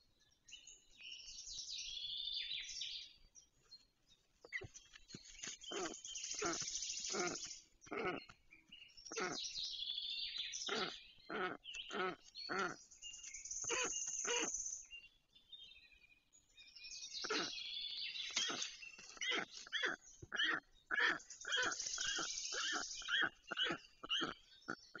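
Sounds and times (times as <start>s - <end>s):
storks calling: 5.7s - 8.3s, 13.6s - 14.6s, 18.3s - 25.0s.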